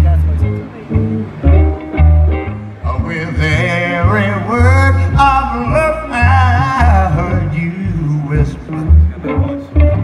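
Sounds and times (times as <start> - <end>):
double bass plucking: 0.0 - 10.0
electric guitar: 0.0 - 10.0
man singing a ballad: 2.8 - 9.1.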